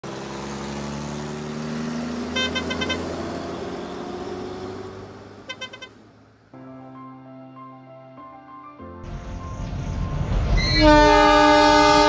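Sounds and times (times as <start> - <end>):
vehicle engine running: 0.0 - 6.5
horn tooting: 2.2 - 4.0, 5.4 - 6.0, 10.6 - 12.0.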